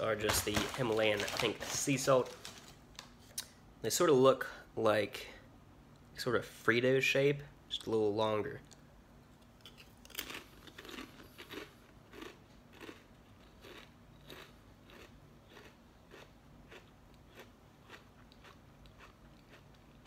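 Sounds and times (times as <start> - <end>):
person chewing crunchy chips: 9.6 - 20.0.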